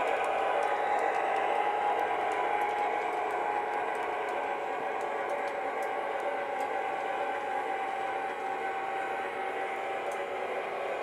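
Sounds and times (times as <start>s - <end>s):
wheels ticking on track: 0.0s - 8.6s
model locomotive diesel engine rumble: 0.0s - 11.0s.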